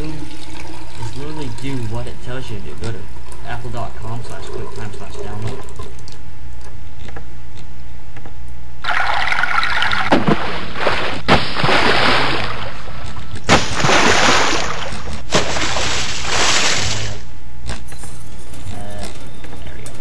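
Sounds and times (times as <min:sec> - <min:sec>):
steady low hum: 0:00.0 - 0:20.0
running water splashing: 0:08.9 - 0:17.3.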